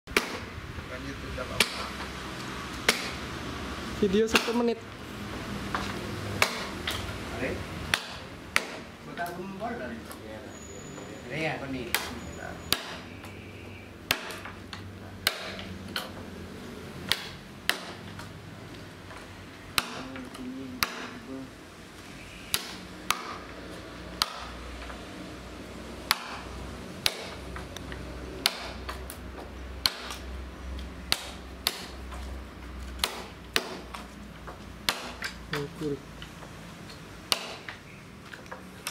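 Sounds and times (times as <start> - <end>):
hammer striking chisel in wood: 7.9 - 8.8, 12.7 - 13.0, 14.1 - 14.5, 15.2 - 16.1, 19.8 - 20.2, 20.8 - 21.2, 24.2 - 24.5, 26.1 - 26.4, 27.0 - 27.4, 28.4 - 29.0, 29.8 - 30.2, 34.9 - 35.3, 37.3 - 37.8.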